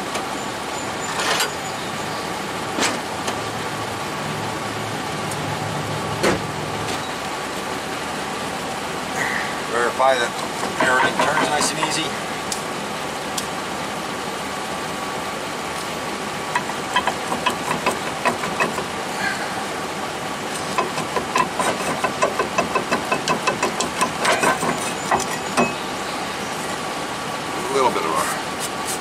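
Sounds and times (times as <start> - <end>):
steady background hum: 0.0 - 29.0
metallic clinks and knocks: 20.7 - 25.8.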